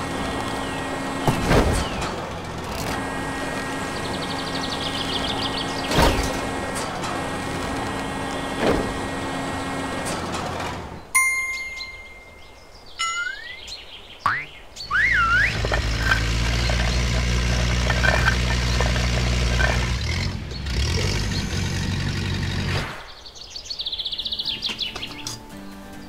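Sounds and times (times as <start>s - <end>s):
clunks: 0.0s - 11.1s, 14.3s - 22.9s
bright chime: 11.2s - 13.6s
whistle-like cartoon sound effects: 13.0s - 13.6s, 14.4s - 15.6s
small electric motor whirring: 15.1s - 22.8s.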